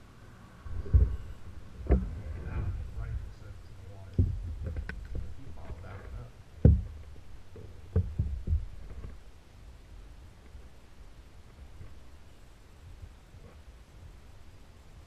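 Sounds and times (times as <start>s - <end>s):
dull knocks on kayak: 6.6s - 7.0s.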